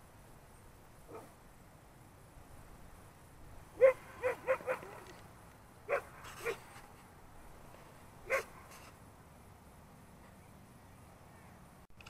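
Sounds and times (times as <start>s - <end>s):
dog barking: 1.1s - 1.3s, 3.8s - 5.1s, 5.9s - 6.6s, 8.3s - 8.8s.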